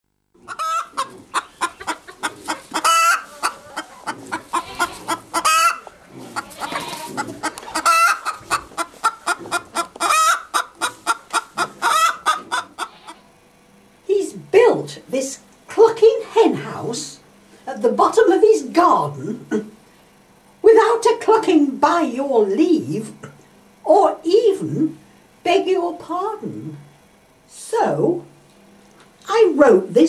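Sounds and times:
hen clucking: 0:00.4 - 0:13.3.

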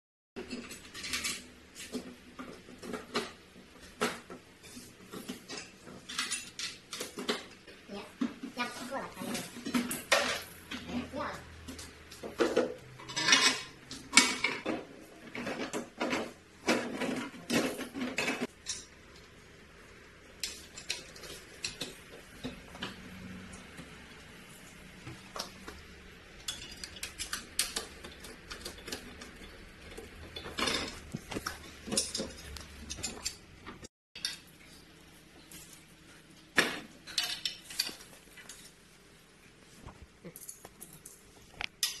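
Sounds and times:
metal fittings clinking on tile floor: 0:04.7 - 0:07.5, 0:12.5 - 0:14.8, 0:26.3 - 0:33.4, 0:37.0 - 0:38.7, 0:40.2 - 0:42.0.

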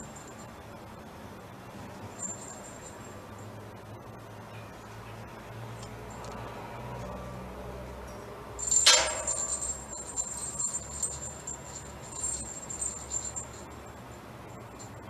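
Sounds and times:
jingle bells jangling: 0:00.0 - 0:00.6, 0:02.0 - 0:03.5, 0:08.6 - 0:15.0.

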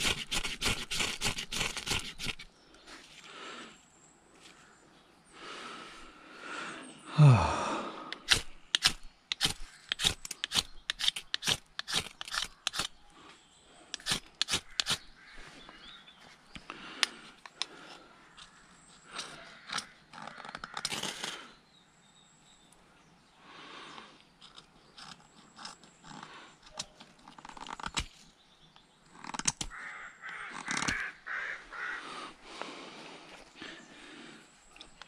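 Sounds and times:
knife scraping ferrocerium rod: 0:00.0 - 0:02.5, 0:08.2 - 0:12.9, 0:13.9 - 0:15.1.

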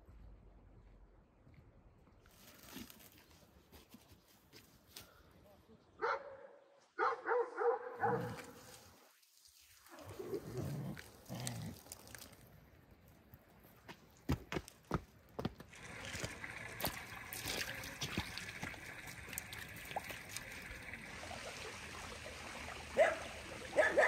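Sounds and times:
dog splashing through water: 0:08.0 - 0:12.6, 0:15.7 - 0:24.0
stream running over stones: 0:08.0 - 0:24.0.

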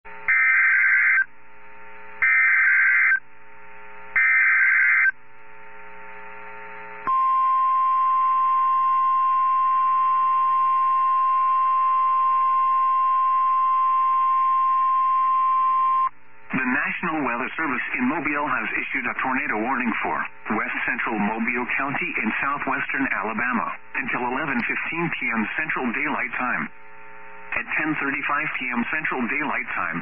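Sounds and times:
steady warning alarm tone: 0:00.2 - 0:01.4, 0:02.2 - 0:03.3, 0:04.1 - 0:05.2, 0:07.0 - 0:16.1
warbling digital header tones: 0:00.3 - 0:01.3, 0:02.2 - 0:03.2, 0:04.2 - 0:05.1.

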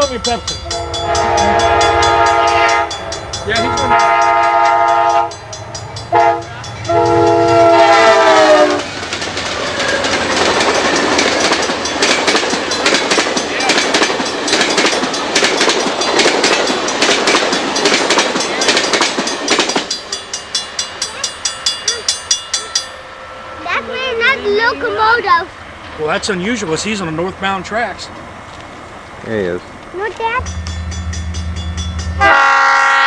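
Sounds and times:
crossing bell ringing: 0:00.0 - 0:28.2, 0:30.2 - 0:33.0
train rail noise rushing: 0:00.0 - 0:33.0
locomotive air horn: 0:00.7 - 0:05.5, 0:06.1 - 0:08.9, 0:32.2 - 0:33.0
clickety-clack of wheels: 0:08.8 - 0:20.1.

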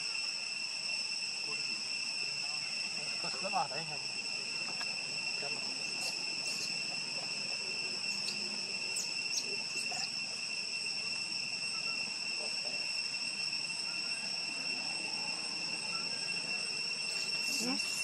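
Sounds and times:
insects droning: 0:00.0 - 0:18.0
faint high chirps: 0:04.6 - 0:12.2, 0:13.4 - 0:18.0.

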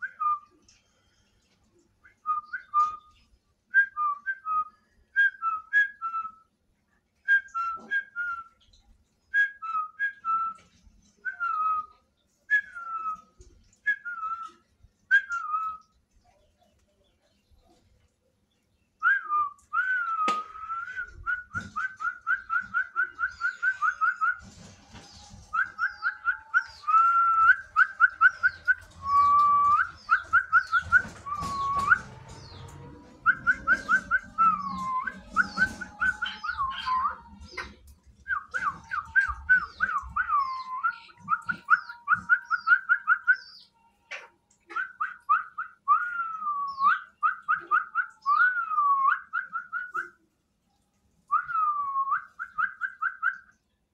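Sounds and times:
whistled trilling tune: 0:19.0 - 0:24.5, 0:25.5 - 0:37.7, 0:38.3 - 0:43.6, 0:44.7 - 0:50.2, 0:51.3 - 0:53.5.

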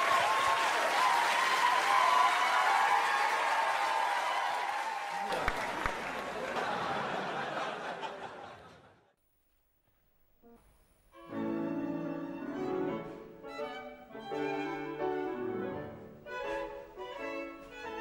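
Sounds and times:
audience noise: 0:00.0 - 0:09.1
piano accompaniment: 0:11.2 - 0:18.0
violin playing: 0:11.2 - 0:18.0.

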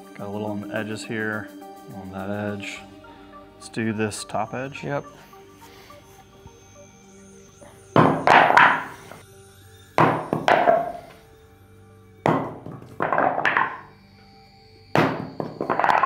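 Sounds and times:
background music: 0:00.0 - 0:16.0
armor plate dropped on concrete: 0:08.0 - 0:09.0, 0:10.0 - 0:11.0, 0:12.3 - 0:13.9, 0:15.0 - 0:16.0
clattering bounce: 0:12.3 - 0:13.9, 0:15.0 - 0:16.0.

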